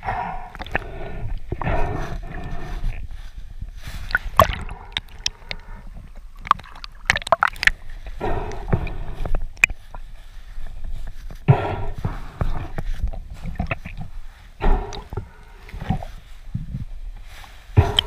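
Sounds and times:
water splashing and gurgling: 0.0s - 16.6s.

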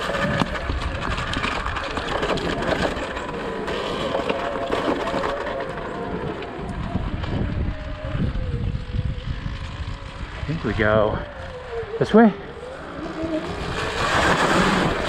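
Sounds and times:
electric dirt bike motor whine: 0.0s - 15.0s
tyres on dirt and dry leaves: 0.0s - 15.0s.

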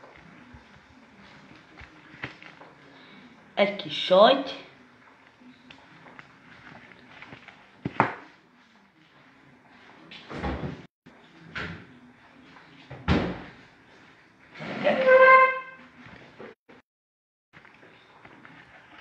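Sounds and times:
short horn-like tone: 14.8s - 15.9s.

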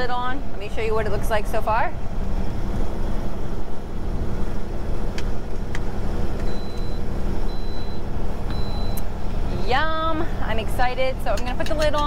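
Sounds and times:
diesel truck engine drone: 0.0s - 12.0s
road noise: 0.0s - 12.0s
faint high beeps: 6.5s - 9.7s.

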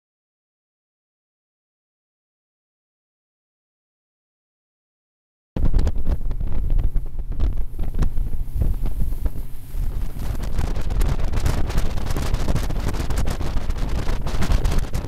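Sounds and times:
wind buffeting microphone: 5.6s - 15.0s.

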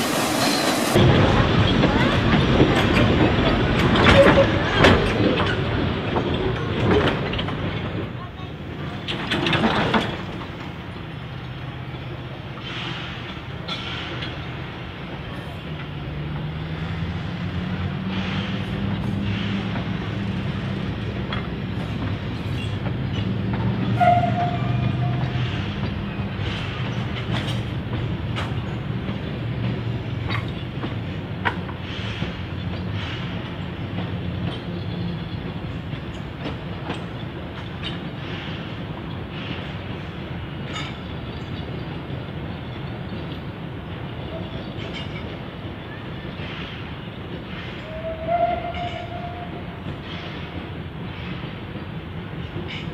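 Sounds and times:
steam train running slowly: 0.0s - 52.9s
wheels clanking and clicking: 1.6s - 8.2s, 8.9s - 10.8s, 24.9s - 39.9s, 40.6s - 42.0s, 44.6s - 45.7s, 48.4s - 52.9s.

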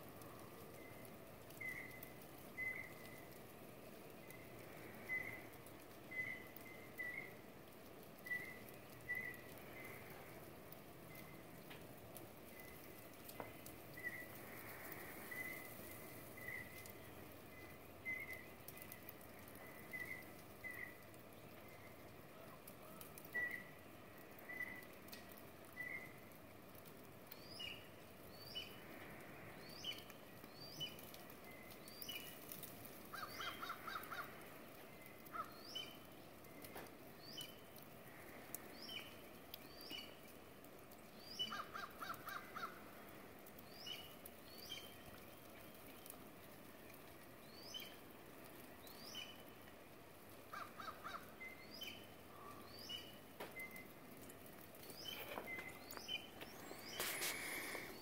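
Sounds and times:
harsh lower bird calls: 0.3s - 3.4s, 4.2s - 7.4s, 8.2s - 10.2s, 13.9s - 21.9s, 22.8s - 25.0s, 29.5s - 37.8s, 41.1s - 46.2s, 50.3s - 53.9s, 54.8s - 58.0s.

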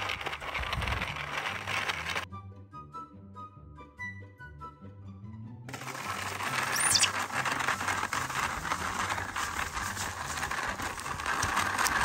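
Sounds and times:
wooden cart dragged on sand: 0.0s - 2.3s, 5.7s - 12.0s.

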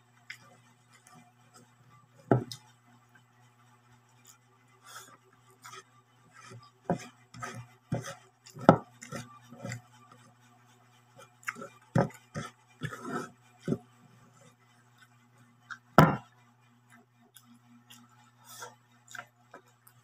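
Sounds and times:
low steady hum: 0.0s - 20.0s
chewing: 11.4s - 12.2s, 19.0s - 20.0s.

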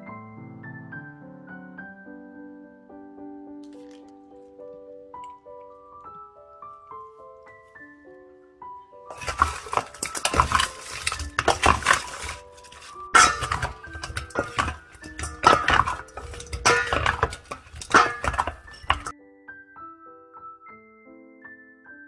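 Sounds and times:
soft piano music: 0.0s - 11.2s, 19.1s - 22.0s
spatula scraping metal bowl: 9.1s - 19.1s.

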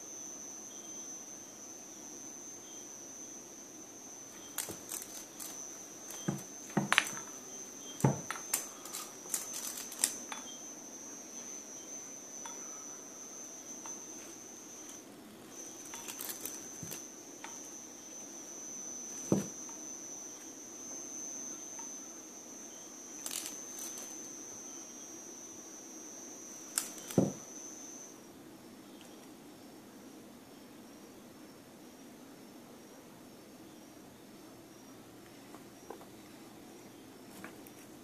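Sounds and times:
cricket trilling: 0.0s - 29.8s, 30.4s - 38.0s.

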